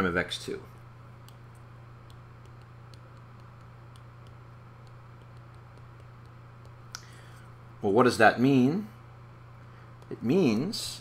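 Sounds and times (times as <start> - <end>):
low electrical hum: 0.0 - 11.0
stylus tapping on tablet screen: 1.2 - 7.0.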